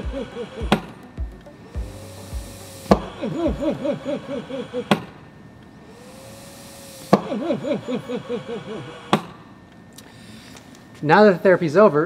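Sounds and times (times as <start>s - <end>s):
cough assist machine airflow: 0.0s - 1.0s, 1.8s - 5.3s, 5.9s - 10.7s.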